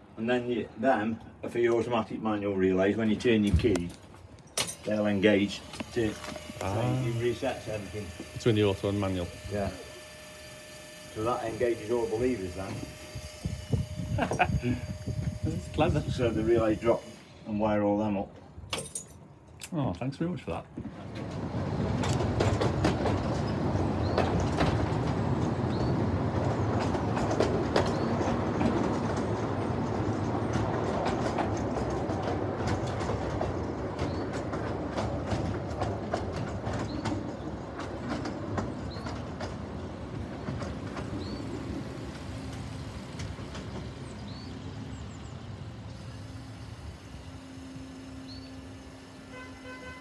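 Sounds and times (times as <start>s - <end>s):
train wheels clicking over rail joints: 2.8s - 14.2s, 20.8s - 50.0s
train rumble: 20.7s - 50.0s.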